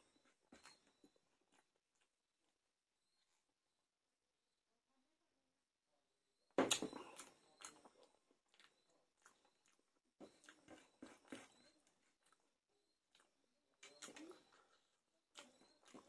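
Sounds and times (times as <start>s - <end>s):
wet chewing and mouth clicks: 6.7s - 16.0s.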